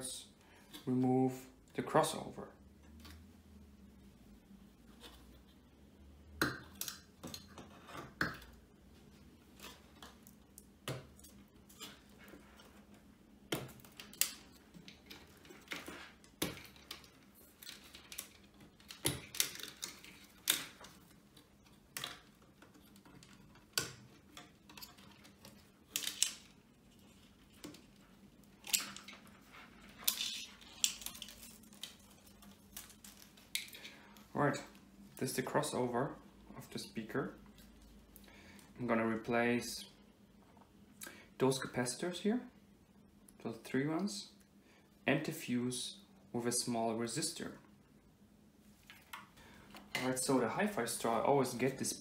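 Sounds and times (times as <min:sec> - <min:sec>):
small clicks and rattles of connectors: 0:13.5 - 0:34.3.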